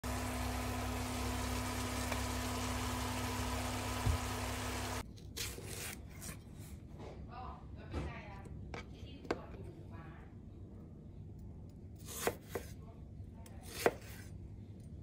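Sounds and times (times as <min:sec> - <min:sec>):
steady hum: 0:00.0 - 0:05.0
knife cutting cucumber on board: 0:12.0 - 0:12.8, 0:13.6 - 0:14.3.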